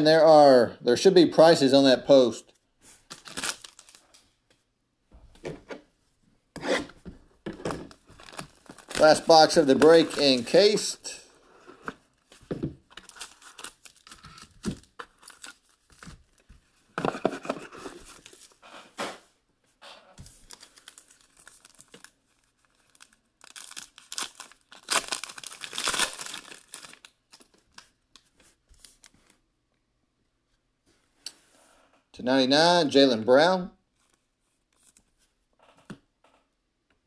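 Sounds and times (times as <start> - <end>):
cellophane wrapper crinkling: 3.0 - 4.2, 7.9 - 11.2, 12.2 - 16.6, 20.2 - 29.4
foil pack being torn open: 3.1 - 4.0, 8.2 - 10.6, 13.0 - 16.1, 20.5 - 27.4.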